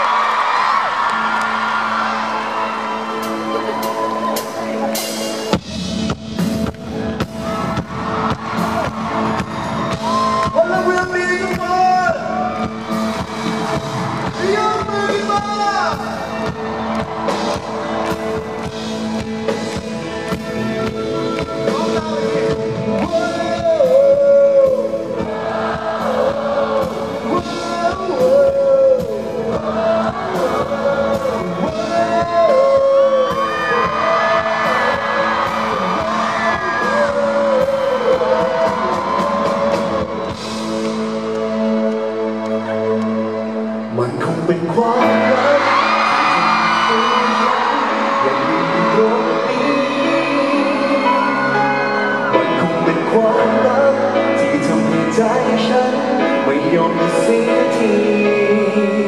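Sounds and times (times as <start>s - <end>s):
live pop band playing: 0.0s - 59.0s
man singing: 19.2s - 40.4s, 43.9s - 59.0s.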